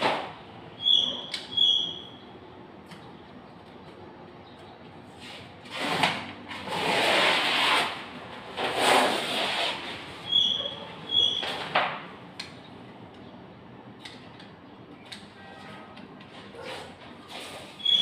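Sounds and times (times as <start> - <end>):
short squeaks and clicks: 0.0 - 3.1, 9.4 - 11.8, 14.0 - 18.0
wallpaper rasping: 5.2 - 10.3.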